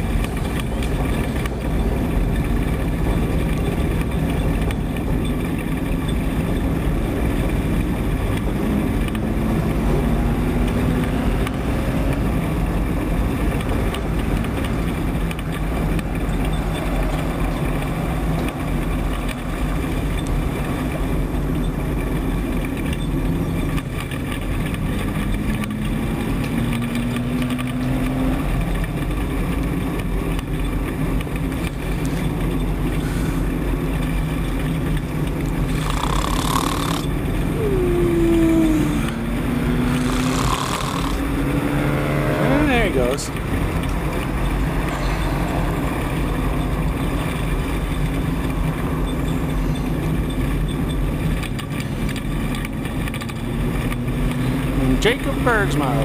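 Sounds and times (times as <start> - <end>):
truck engine running: 0.0 - 26.3, 28.4 - 56.0
rushes of noise: 31.4 - 48.8.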